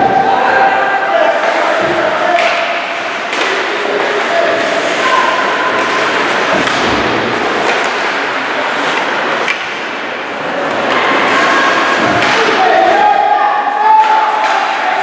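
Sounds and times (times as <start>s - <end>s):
din of spectators: 0.0s - 15.0s.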